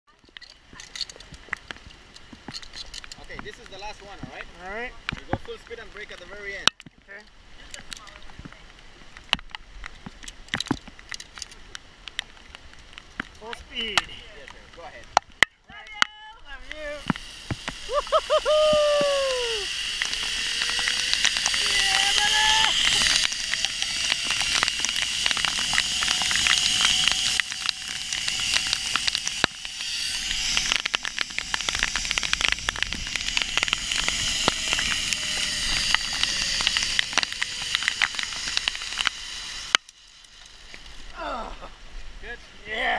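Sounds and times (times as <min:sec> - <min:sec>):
raindrops crackling on camera: 0:00.1 - 0:42.1
zip-line pulleys whining on cable: 0:16.6 - 0:41.2.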